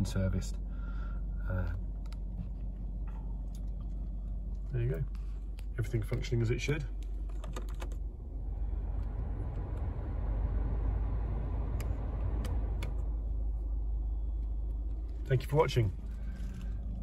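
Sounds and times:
car engine idling hum: 0:00.0 - 0:17.0
heater blower fan rushing air: 0:08.0 - 0:17.0.

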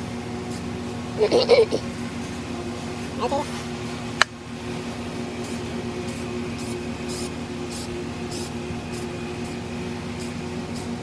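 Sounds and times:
steady low hum: 0:00.0 - 0:11.0
spray paint hissing in bursts: 0:00.4 - 0:01.5, 0:05.2 - 0:11.0.

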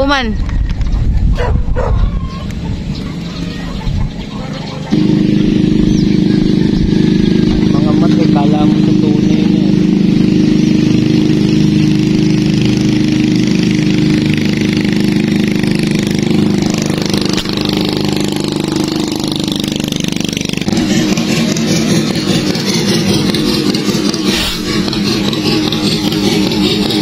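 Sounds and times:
small engine humming: 0:02.4 - 0:27.0.

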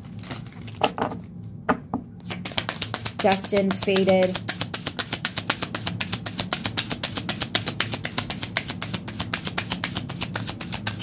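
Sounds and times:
cards shuffling: 0:02.2 - 0:11.0.

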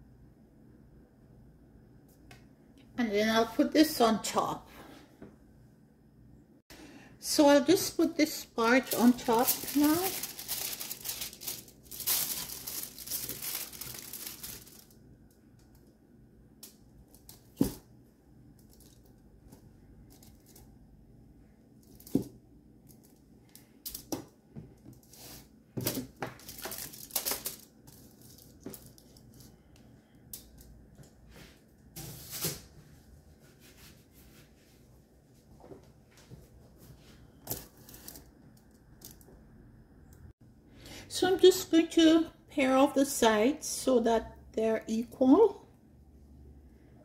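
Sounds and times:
aluminium foil crinkling: 0:08.2 - 0:15.9, 0:18.6 - 0:19.2, 0:20.0 - 0:20.8, 0:25.9 - 0:29.7, 0:37.4 - 0:39.3.

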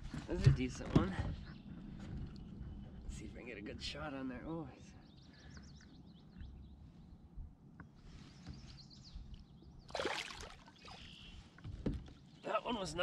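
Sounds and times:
small birds chirping: 0:01.0 - 0:13.0
fish splashing in water: 0:09.9 - 0:11.1.

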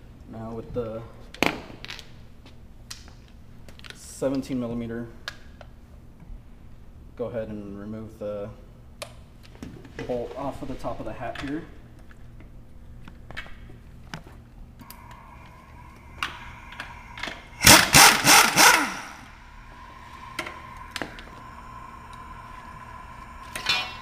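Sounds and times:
pneumatic impact wrench rattling: 0:16.2 - 0:19.3.

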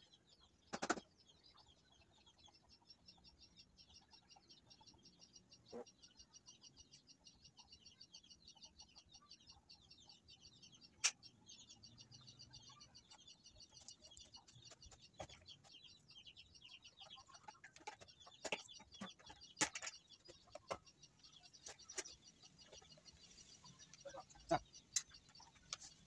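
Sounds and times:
rapid high chirping: 0:08.8 - 0:26.0.

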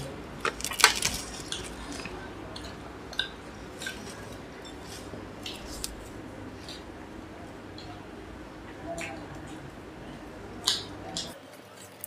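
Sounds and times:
crisp crackles: 0:00.0 - 0:02.3, 0:03.8 - 0:06.8.

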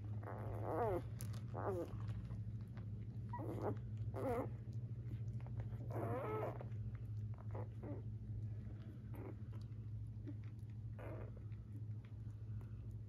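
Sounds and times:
steady low hum: 0:00.0 - 0:13.0
puppies squeaky whimpers: 0:00.2 - 0:01.9, 0:03.3 - 0:04.5, 0:05.8 - 0:06.6.

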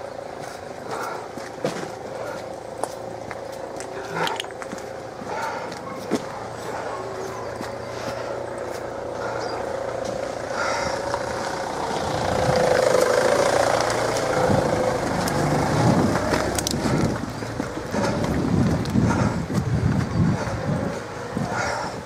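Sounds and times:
hounds baying in chorus: 0:00.0 - 0:12.1, 0:20.3 - 0:22.0
wind buffeting microphone: 0:03.1 - 0:22.0.

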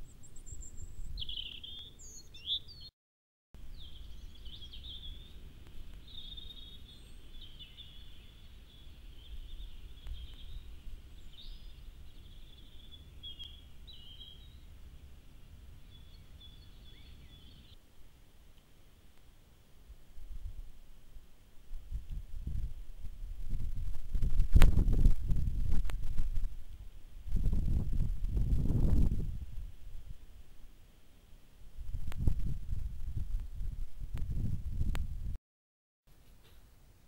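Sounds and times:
songbirds chirping: 0:00.0 - 0:02.9, 0:03.6 - 0:21.7
low steady rumble: 0:03.6 - 0:35.4.

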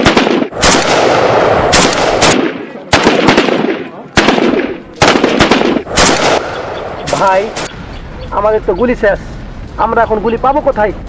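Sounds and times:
rifle shots echoing: 0:00.0 - 0:07.8.

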